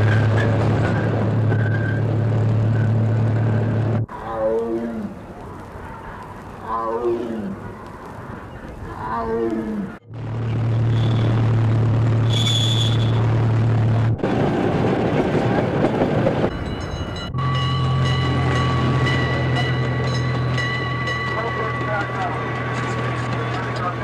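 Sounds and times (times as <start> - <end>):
wheels rattling on track: 0.0 - 4.1, 10.2 - 24.0
high whine: 10.0 - 15.1
miniature train engine drone: 10.2 - 24.0.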